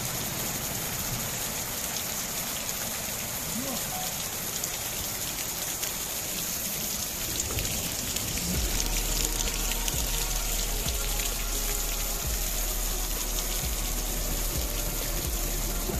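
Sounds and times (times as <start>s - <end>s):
hailstones ticking on ground: 0.0s - 15.9s
rain on pavement: 0.0s - 15.9s
low rumble: 7.4s - 15.9s.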